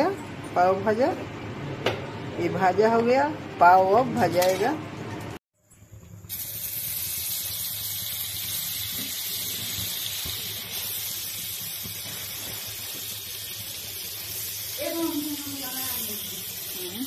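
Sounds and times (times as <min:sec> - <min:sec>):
butter sizzling on a griddle: 0:06.2 - 0:17.0.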